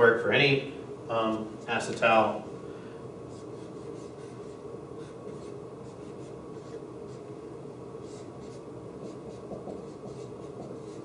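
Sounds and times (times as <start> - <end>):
steady background hum: 0.0 - 11.0
marker drawing on whiteboard: 3.3 - 7.4, 8.0 - 11.0.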